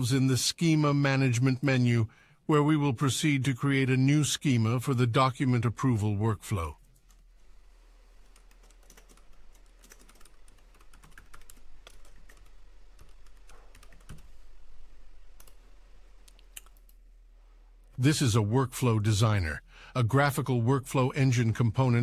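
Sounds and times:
computer keyboard typing: 0:08.3 - 0:14.4, 0:15.4 - 0:15.6.

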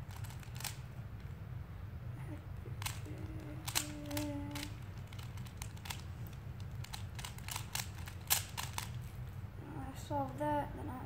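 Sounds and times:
rubik's cube clicking: 0:00.1 - 0:00.9, 0:02.8 - 0:09.1.

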